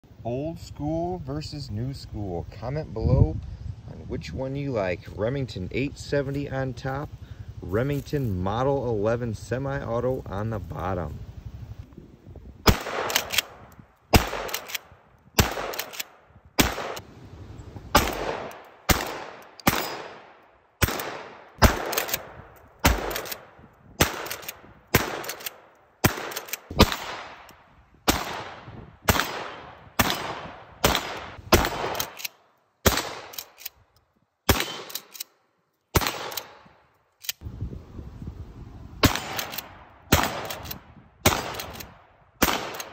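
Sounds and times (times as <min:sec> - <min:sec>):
shotgun blasts with echo: 0:12.6 - 0:17.0, 0:17.9 - 0:32.2, 0:32.8 - 0:33.6, 0:34.5 - 0:35.1, 0:35.9 - 0:36.8, 0:39.0 - 0:42.9.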